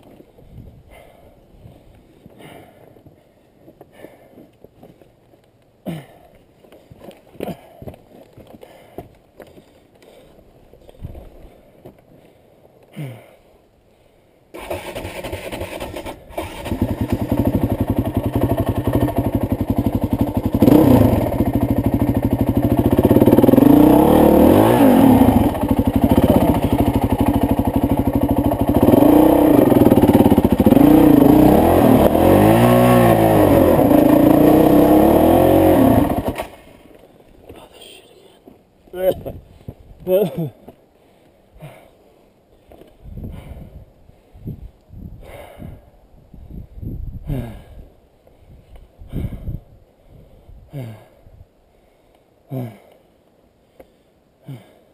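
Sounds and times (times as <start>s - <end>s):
dirt bike engine revving: 14.6s - 36.7s.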